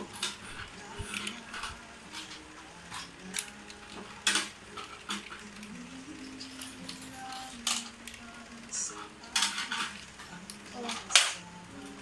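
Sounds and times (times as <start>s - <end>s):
plastic toy clicks and knocks: 0.1s - 5.7s, 9.0s - 11.5s.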